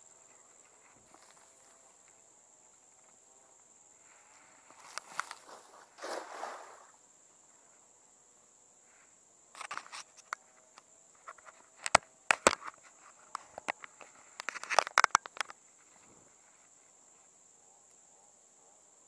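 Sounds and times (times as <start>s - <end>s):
high-pitched insect drone: 0.0s - 17.2s
fishing line clicking and crackling: 4.7s - 7.0s, 9.5s - 15.6s.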